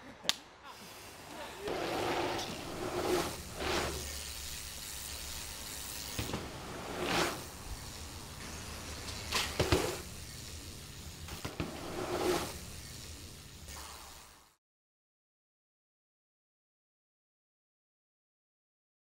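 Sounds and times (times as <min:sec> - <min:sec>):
bike tyre rushing on dirt: 0:01.6 - 0:13.8
bike clicks and rattles: 0:02.4 - 0:13.6.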